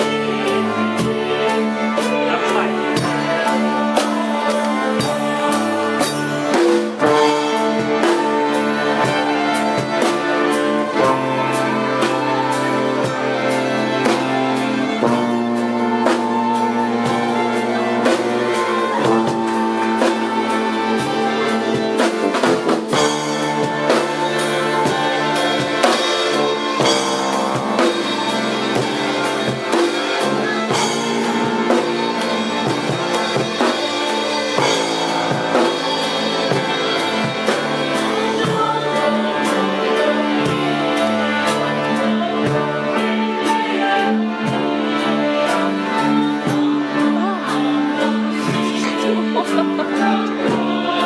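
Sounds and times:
drum kit strikes: 21.6 - 39.6.

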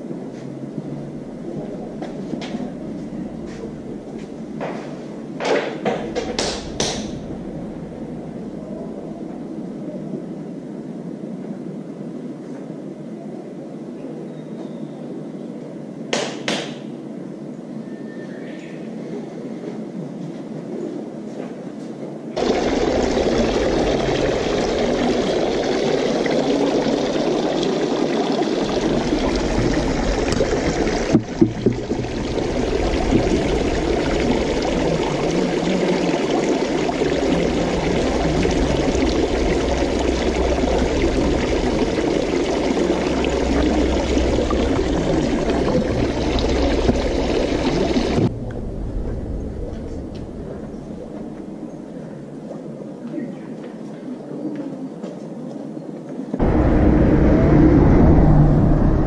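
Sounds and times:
flowing water rushing: 0.8 - 9.7, 22.4 - 52.0
sharp knocks: 5.4 - 7.2.

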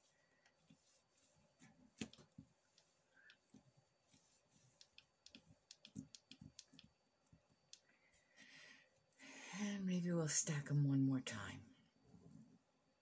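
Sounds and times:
fingers tapping clay sheets: 1.9 - 7.8.

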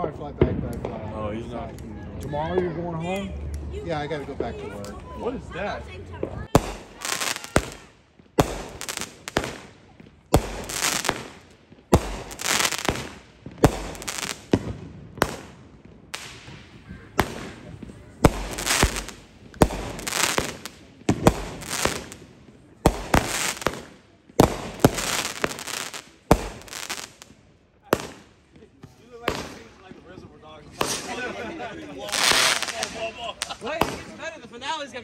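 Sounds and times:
fireworks bangs: 6.0 - 30.0, 30.6 - 34.6
firework hiss: 6.6 - 15.6, 16.2 - 22.3, 22.9 - 27.3, 32.0 - 34.0.

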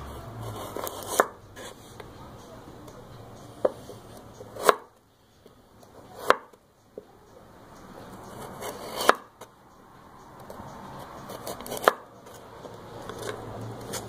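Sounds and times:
knife slicing carrot: 0.3 - 1.8, 3.6 - 5.0, 6.1 - 6.6, 8.3 - 9.4, 11.0 - 14.0.

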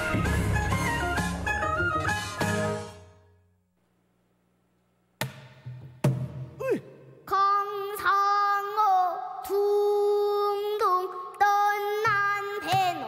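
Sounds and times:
girl singing long held notes: 7.2 - 13.0.

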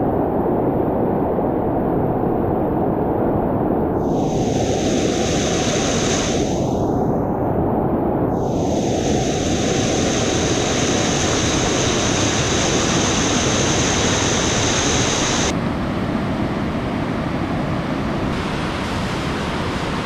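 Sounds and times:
white water rushing over rock: 8.6 - 15.5.

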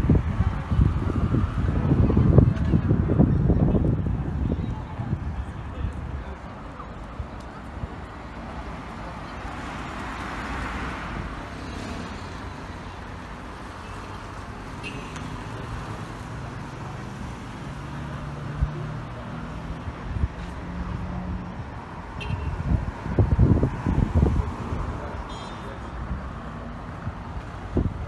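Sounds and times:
cars driving past: 6.2 - 28.0.

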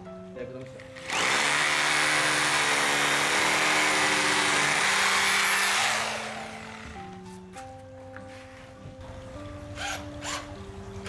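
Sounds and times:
power drill drilling into wood: 0.9 - 7.0.

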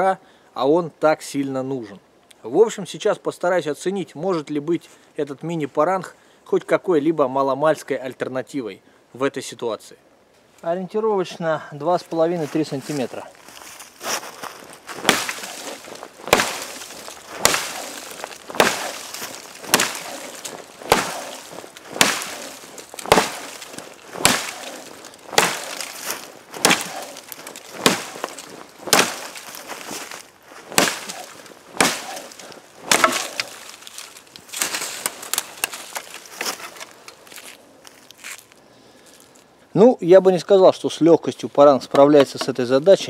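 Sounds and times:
wood cracking: 13.0 - 38.6
blade chopping frozen wood: 15.0 - 36.9.

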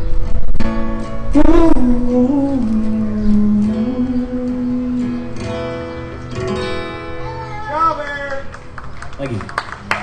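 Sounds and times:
acoustic guitar strummed chords: 0.0 - 7.5
long low held note: 1.4 - 5.4.

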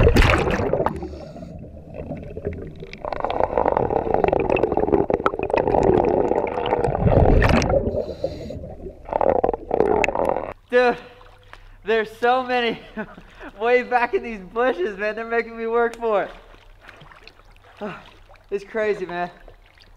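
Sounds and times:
bubbles gurgling underwater: 0.0 - 10.6
diver breathing through regulator: 7.8 - 8.8.

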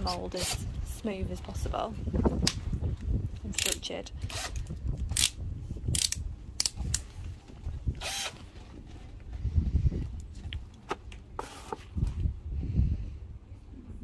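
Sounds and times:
tools clicking and knocking: 3.5 - 7.0.

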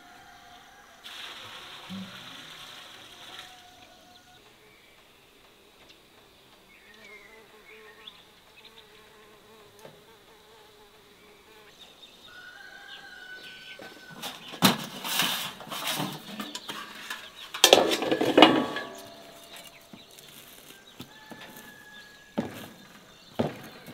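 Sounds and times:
insects buzzing: 0.0 - 23.9
metal tray and utensil clattering: 14.2 - 19.8.

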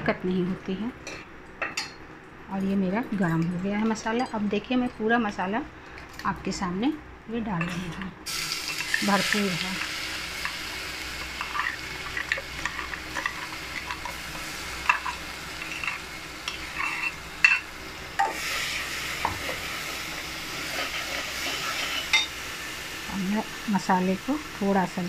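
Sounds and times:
paste sizzling in hot oil: 8.3 - 25.0
steel spatula scraping and clinking: 14.8 - 17.6.

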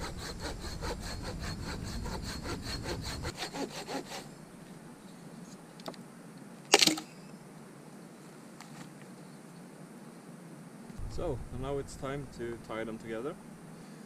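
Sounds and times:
hand saw cutting wood: 0.0 - 4.3.

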